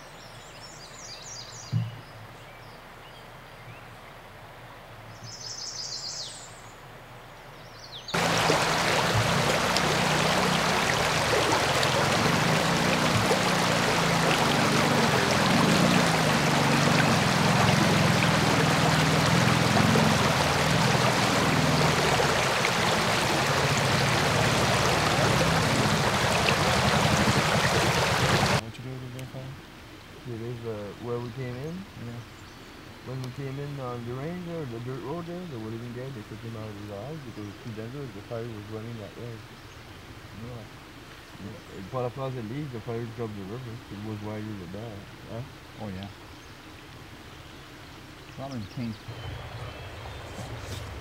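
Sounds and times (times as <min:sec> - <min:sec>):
rushing river current: 0:08.1 - 0:28.7, 0:43.4 - 0:51.0.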